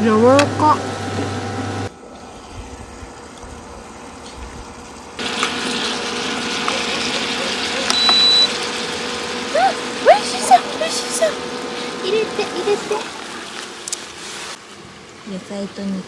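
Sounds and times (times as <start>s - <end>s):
meat and vegetables sizzling: 2.2s - 14.6s
short high beep: 7.9s - 8.6s.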